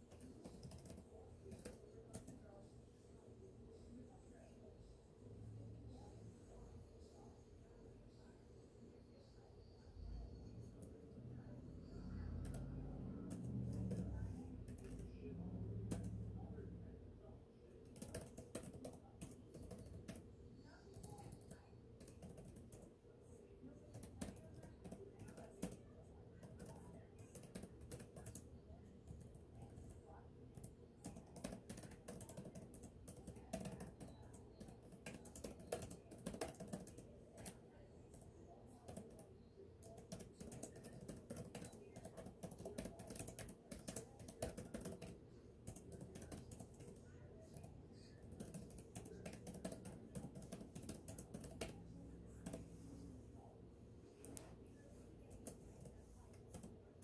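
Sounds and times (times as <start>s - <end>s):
keyboard typing: 0.0s - 2.6s, 10.4s - 16.6s, 17.8s - 23.0s, 23.6s - 52.8s, 55.2s - 57.0s.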